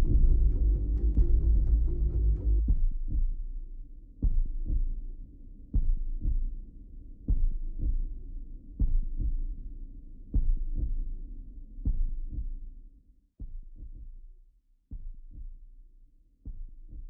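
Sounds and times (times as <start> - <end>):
steady low hum: 0.0 - 3.6
heartbeat thumps: 0.0 - 12.8, 13.4 - 14.3, 14.9 - 15.8, 16.4 - 17.0.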